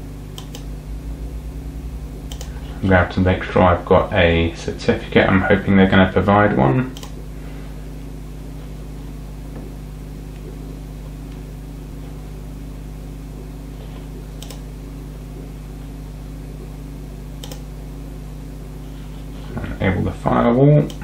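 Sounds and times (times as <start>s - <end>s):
computer humming: 0.0s - 21.0s
mouse clicks: 0.4s - 0.7s, 2.3s - 2.6s, 14.4s - 14.6s, 17.4s - 17.6s.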